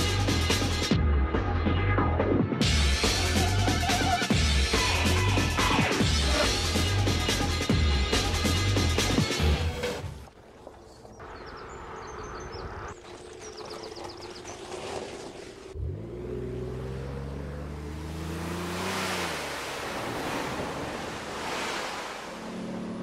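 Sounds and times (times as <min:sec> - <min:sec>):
birds chirping: 0:10.3 - 0:15.8
churning water rushing: 0:12.8 - 0:23.0
car engine starting and revving: 0:15.6 - 0:23.0.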